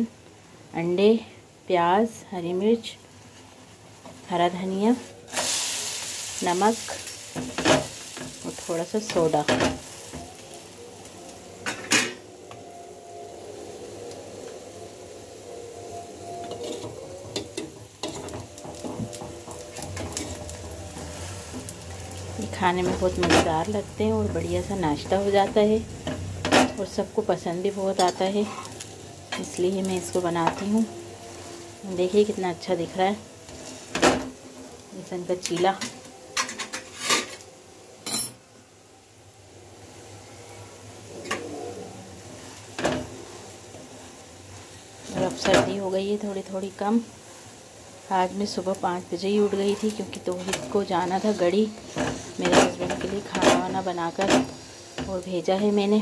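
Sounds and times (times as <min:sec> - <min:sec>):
pancake sizzling in a pan: 0:02.0 - 0:56.0
spatula scraping a pan: 0:16.4 - 0:26.9, 0:27.9 - 0:32.3, 0:49.4 - 0:55.7.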